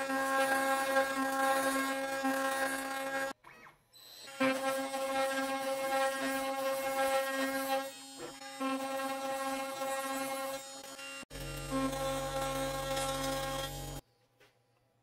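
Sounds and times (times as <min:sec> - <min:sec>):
end mill cutting wood: 0:00.0 - 0:03.4, 0:04.2 - 0:14.0
router spindle whine: 0:04.0 - 0:14.0.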